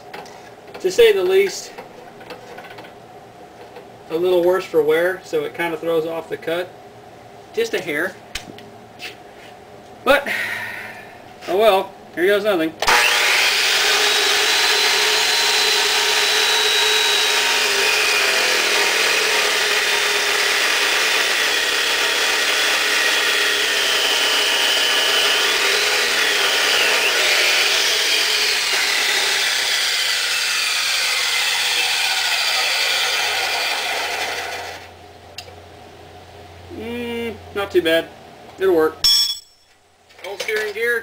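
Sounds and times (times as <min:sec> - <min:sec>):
chop saw cutting steel: 0:12.8 - 0:34.9.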